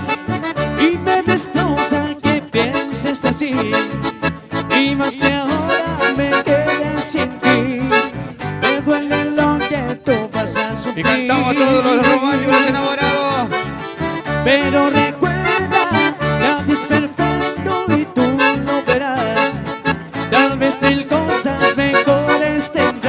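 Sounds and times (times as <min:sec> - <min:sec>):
accordion-led music: 0:00.0 - 0:23.0
steady bass beat: 0:10.4 - 0:21.5.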